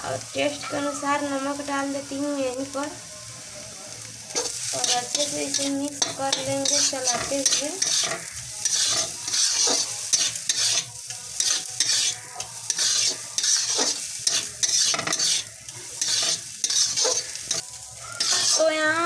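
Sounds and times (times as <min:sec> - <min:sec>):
food sizzling: 0:00.0 - 0:19.0
spatula scraping a metal pan: 0:04.4 - 0:18.7.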